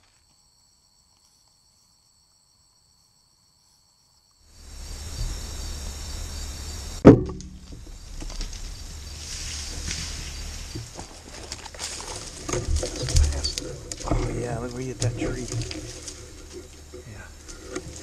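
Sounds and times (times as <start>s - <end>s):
crickets chirping: 0.0s - 18.0s
bow shot crack: 7.0s - 8.8s.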